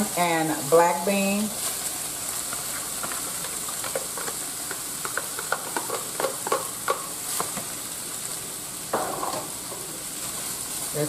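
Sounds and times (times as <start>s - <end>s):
meat sizzling in a skillet: 0.0s - 11.0s.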